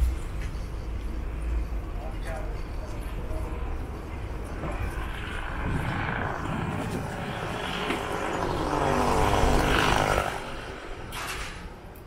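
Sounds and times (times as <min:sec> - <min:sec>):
engine passing by: 0:00.0 - 0:12.0
wind rumble on microphone: 0:02.7 - 0:11.7.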